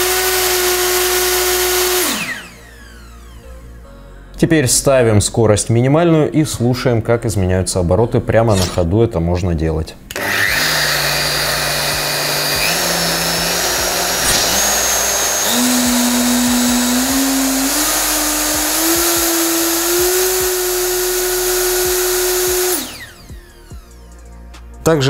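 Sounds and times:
router motor whine: 0:00.0 - 0:03.6, 0:10.1 - 0:24.1.

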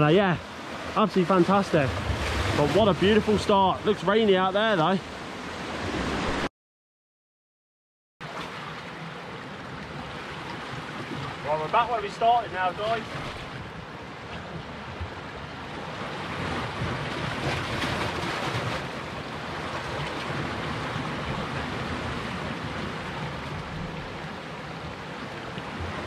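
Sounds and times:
surf breaking on rocks: 0:00.0 - 0:06.5, 0:10.0 - 0:13.6, 0:16.0 - 0:23.3.

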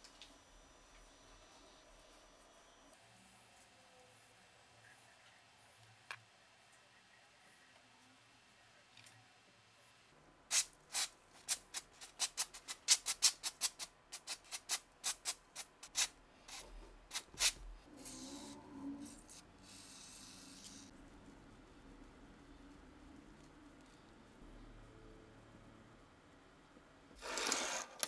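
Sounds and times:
aerosol can spraying bursts: 0:10.5 - 0:11.6.

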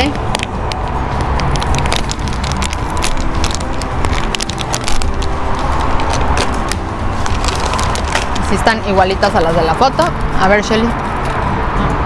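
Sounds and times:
plastic snack bag crinkling: 0:00.3 - 0:08.7.

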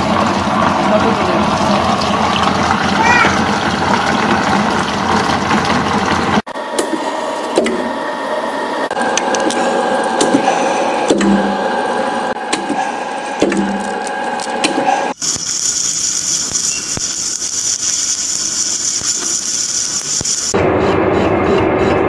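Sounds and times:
machine hum: 0:00.0 - 0:22.0
welding high hiss: 0:15.1 - 0:20.6.

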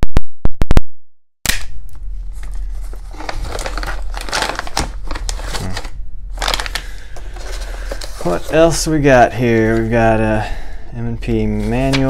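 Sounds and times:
steady low hum: 0:01.5 - 0:12.0
plastic bag crinkling: 0:02.4 - 0:09.9.

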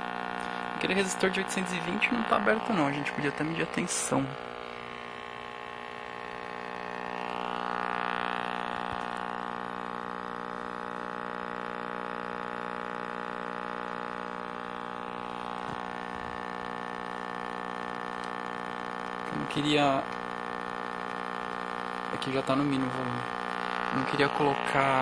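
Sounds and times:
mains hum from speaker: 0:00.0 - 0:25.0
static hiss: 0:00.0 - 0:25.0.

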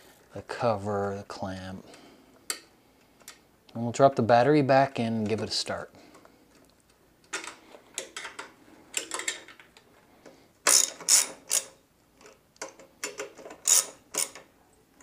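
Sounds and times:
metallic clicks and rattles: 0:06.5 - 0:09.9.

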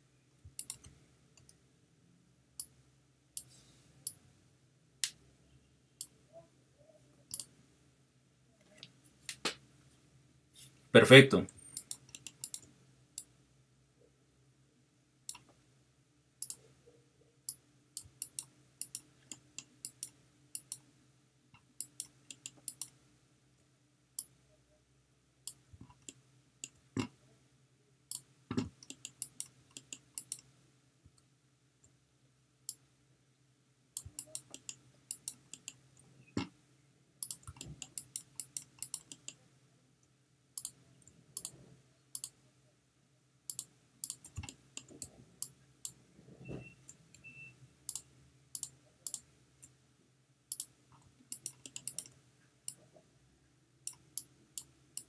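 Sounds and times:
computer mouse and keyboard clicks: 0:00.5 - 0:01.6, 0:07.3 - 0:07.5, 0:11.6 - 0:13.3, 0:15.3 - 0:15.6, 0:16.4 - 0:16.6, 0:17.5 - 0:20.8, 0:21.6 - 0:23.0, 0:28.1 - 0:30.5, 0:34.0 - 0:35.8, 0:37.2 - 0:39.4, 0:40.6 - 0:42.4, 0:43.5 - 0:47.3, 0:47.9 - 0:49.3, 0:50.5 - 0:52.8.

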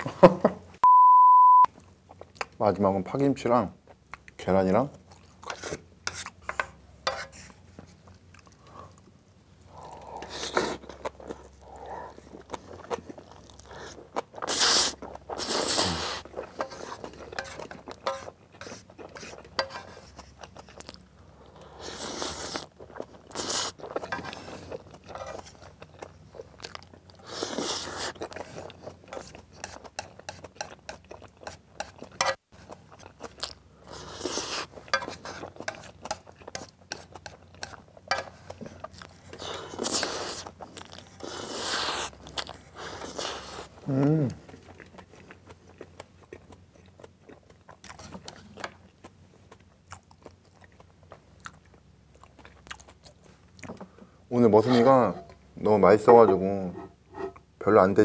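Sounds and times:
chewing and crunching: 0:01.8 - 0:02.6, 0:03.8 - 0:06.7, 0:07.4 - 0:55.4
chopsticks scraping metal pan: 0:05.5 - 0:07.4, 0:17.4 - 0:18.7, 0:19.6 - 0:19.9, 0:56.1 - 0:57.4
noodle slurps: 0:14.4 - 0:16.3.

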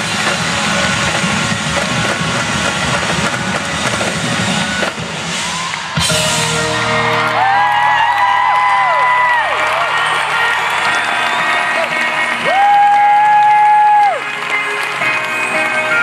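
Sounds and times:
distant live band with drums: 0:00.0 - 0:07.6.

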